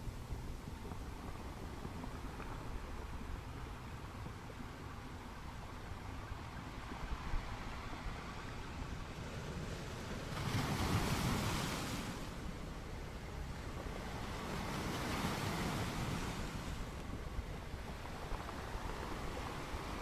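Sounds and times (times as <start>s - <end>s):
wind on microphone: 0.0s - 20.0s
sea waves: 4.9s - 20.0s.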